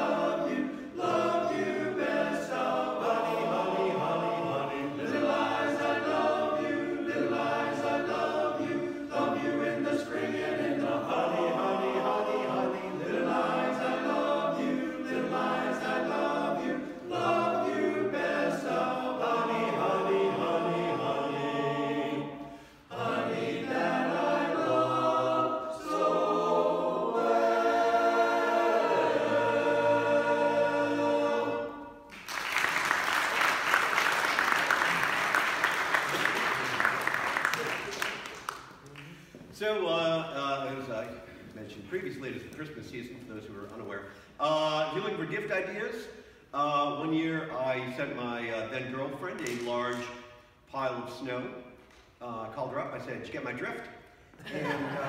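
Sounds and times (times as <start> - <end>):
barbershop chorus singing a cappella: 0.0 - 32.1, 44.1 - 48.9, 54.3 - 55.0.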